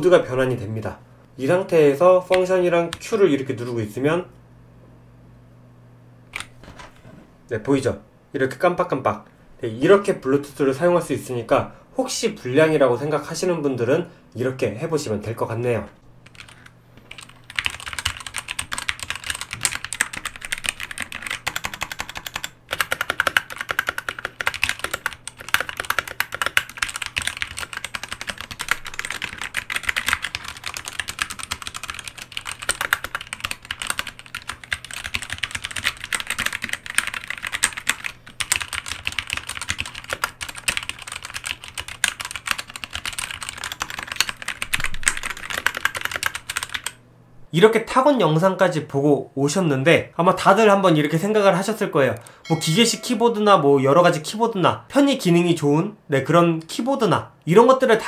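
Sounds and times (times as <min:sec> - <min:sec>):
mechanical keyboard typing: 0:16.2 - 0:47.0.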